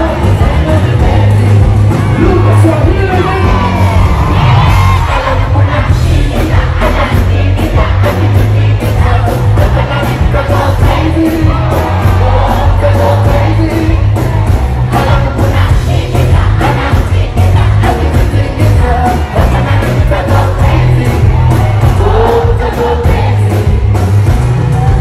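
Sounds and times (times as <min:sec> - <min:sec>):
crowd: 0:00.0 - 0:25.0
live band music: 0:00.0 - 0:25.0
voices singing: 0:00.0 - 0:25.0.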